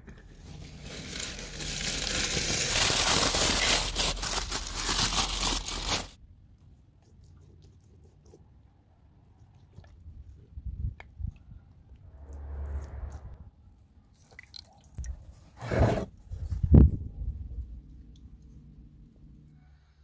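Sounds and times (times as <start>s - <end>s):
aluminium foil crinkling: 0.4s - 6.2s.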